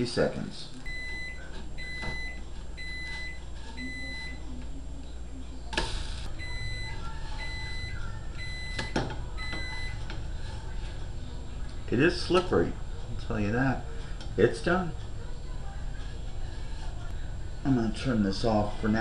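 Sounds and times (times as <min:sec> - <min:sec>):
kitchen timer beeping: 0:00.9 - 0:04.4, 0:06.3 - 0:10.2.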